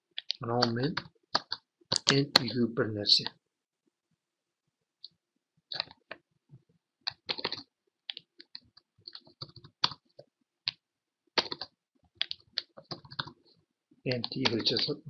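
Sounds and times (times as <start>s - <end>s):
typing on a keyboard: 7.1s - 10.0s, 11.4s - 13.4s, 14.1s - 15.0s.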